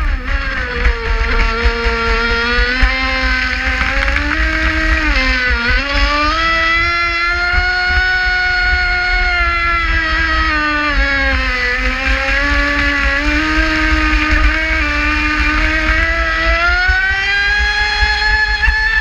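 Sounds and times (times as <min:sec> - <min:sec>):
speedboat motor whining: 0:02.1 - 0:06.8.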